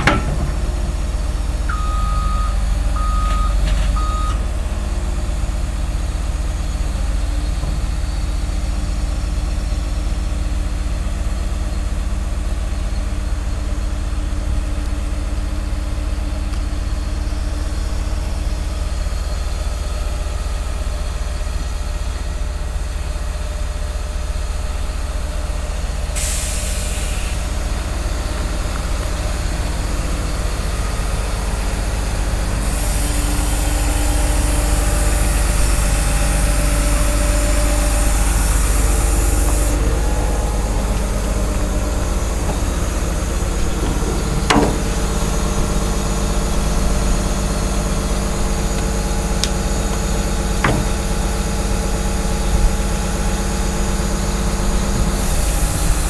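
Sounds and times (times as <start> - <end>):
excavator diesel engine running: 0.0 - 56.0
air hissing: 26.2 - 27.6, 47.7 - 51.6.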